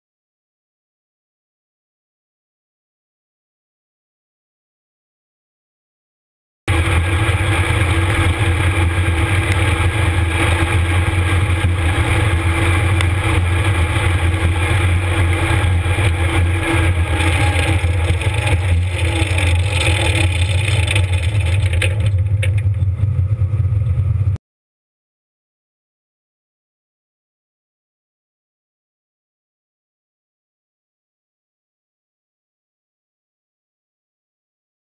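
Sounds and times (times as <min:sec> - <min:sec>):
combine harvester mechanical drone: 0:06.7 - 0:24.4.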